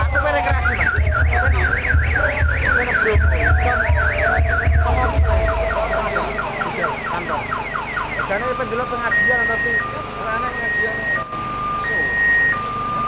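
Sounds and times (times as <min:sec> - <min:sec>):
low thumping: 0:00.0 - 0:08.0
electronic alarm siren warbling: 0:00.0 - 0:13.0.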